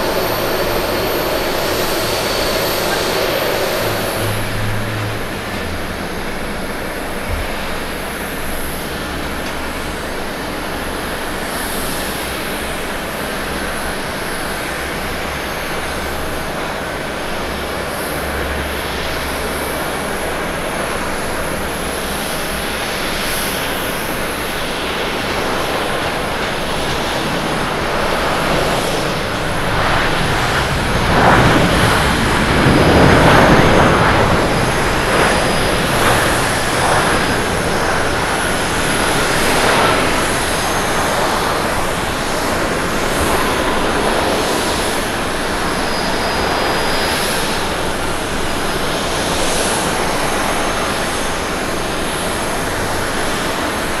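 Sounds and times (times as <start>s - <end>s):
jet engines roaring: 0.0s - 54.0s.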